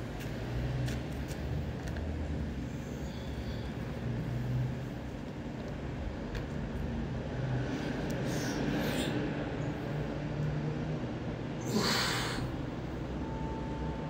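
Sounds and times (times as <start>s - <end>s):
person breathing: 7.7s - 9.3s.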